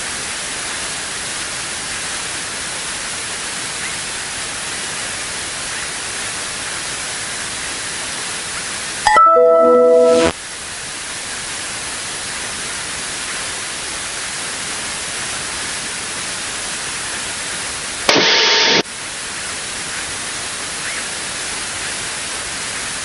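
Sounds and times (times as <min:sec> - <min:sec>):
radio static hiss: 0:09.9 - 0:10.4, 0:18.0 - 0:18.9
burst of radio noise: 0:18.1 - 0:18.9.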